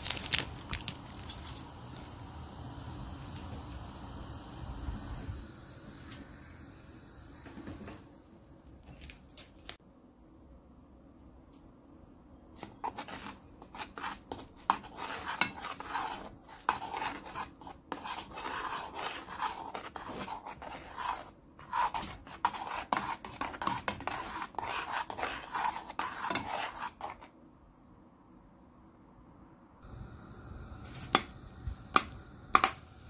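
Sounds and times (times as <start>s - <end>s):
metal spoon scraping saucepan: 12.6s - 27.3s.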